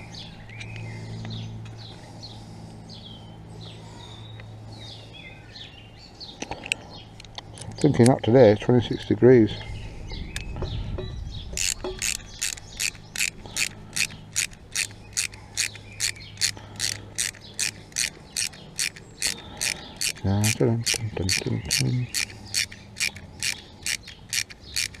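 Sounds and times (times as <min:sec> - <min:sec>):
ratchet wrench clicking: 0:11.6 - 0:25.0.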